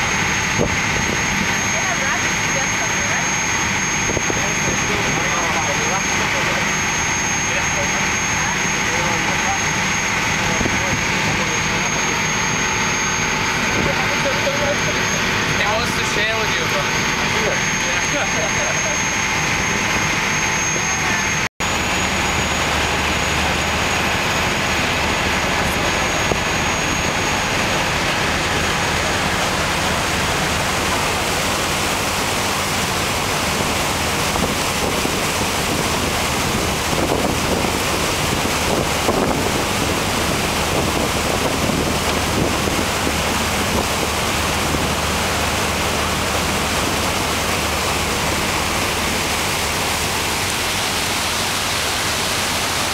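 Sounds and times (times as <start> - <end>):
boat engine drone: 0.0 - 52.9
water noise: 0.0 - 52.9
wind on microphone: 0.5 - 1.5, 33.5 - 45.3.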